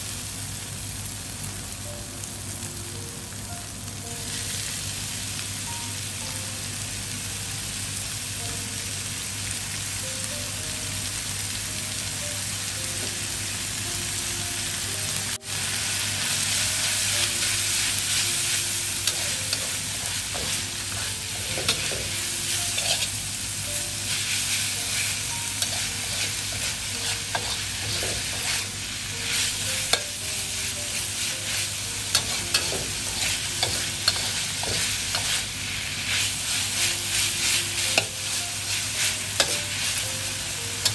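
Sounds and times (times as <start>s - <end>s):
meat sizzling in a wok: 0.0s - 40.9s
metal spatula scraping a pan: 19.0s - 23.2s, 25.6s - 28.6s, 31.5s - 35.4s.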